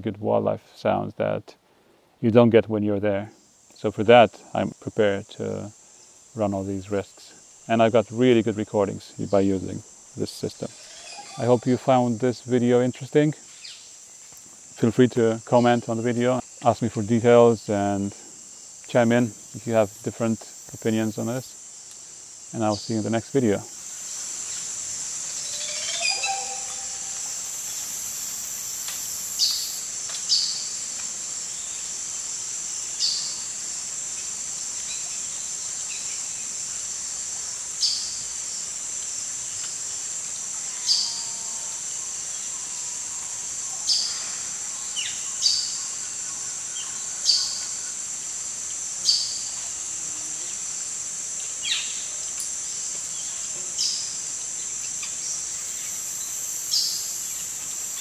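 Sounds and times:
high-pitched insect drone: 4.6s - 58.0s.

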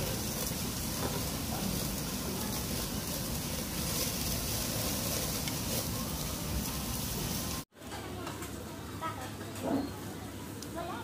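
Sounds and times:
meat sizzling on a grill: 0.0s - 7.7s.

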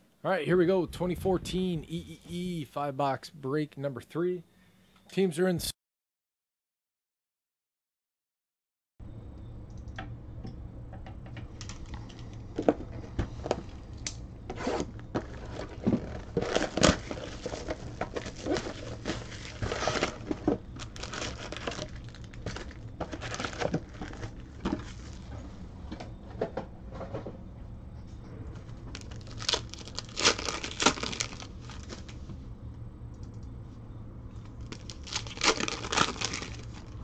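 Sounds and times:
shrink wrap crinkling and tearing: 14.6s - 25.2s, 28.9s - 32.2s, 34.5s - 37.0s.

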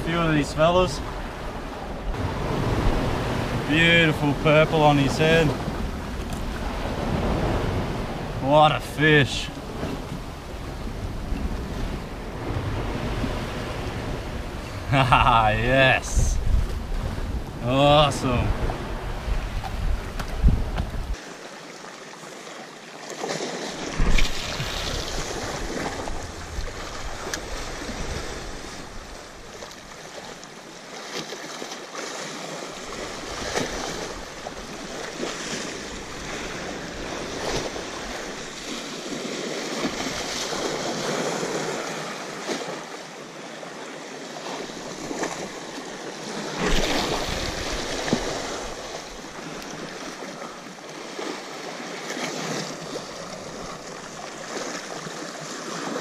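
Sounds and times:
waves breaking against rocks: 0.0s - 56.0s
wind buffeting microphone: 15.9s - 21.2s.

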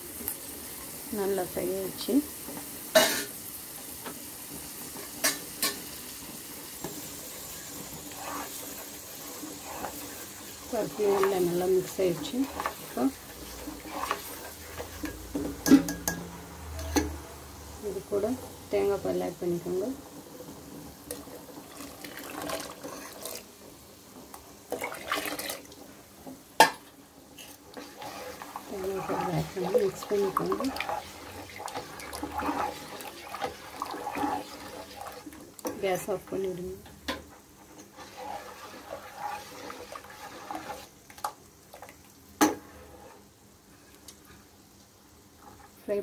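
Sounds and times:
ladle stirring sloshing liquid: 6.9s - 16.2s, 21.1s - 23.5s, 24.7s - 25.8s, 27.4s - 35.7s, 37.6s - 43.2s
ladle clinking against pot: 15.0s - 17.1s
coconut milk pouring into a pot: 21.6s - 23.5s, 24.7s - 25.8s, 27.7s - 35.4s, 38.0s - 40.9s.

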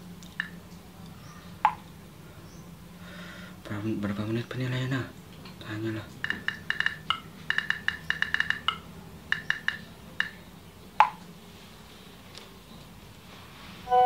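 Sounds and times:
touchscreen keyboard tapping: 6.2s - 10.4s.

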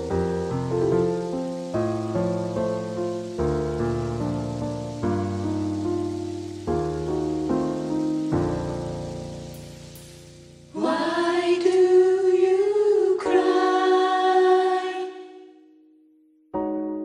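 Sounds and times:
piano chord: 0.0s - 11.1s
gospel choir singing: 10.7s - 15.5s.

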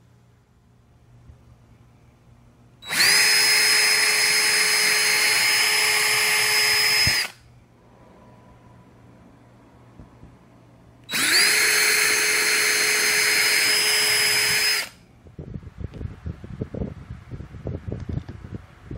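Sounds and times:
power drill boring into plastic: 2.8s - 7.4s, 11.1s - 15.0s.

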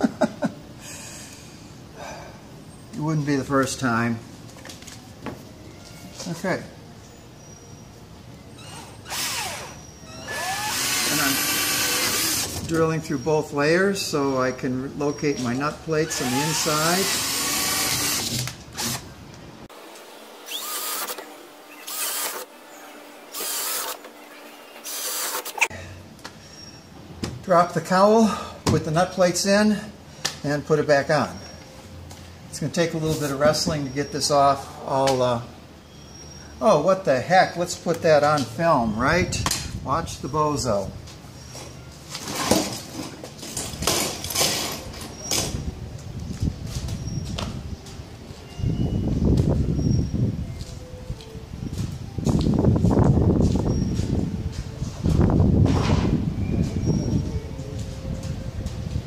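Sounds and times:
cordless drill drilling: 8.6s - 12.6s, 16.0s - 19.0s, 20.4s - 22.5s, 23.3s - 24.1s, 24.8s - 25.7s.

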